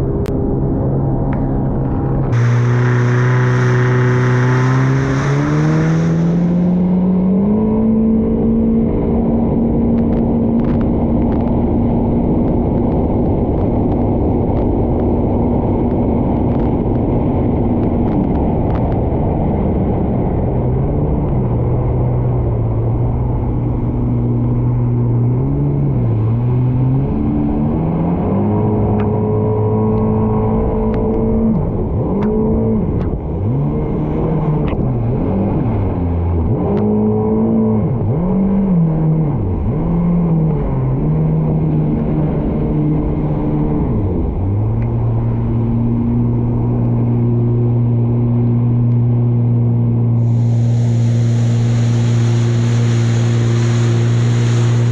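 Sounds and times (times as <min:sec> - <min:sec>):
watercraft engine running: 0:00.8 - 0:07.2, 0:50.2 - 0:54.9
water rushing against hull: 0:02.1 - 0:07.3, 0:50.2 - 0:54.9.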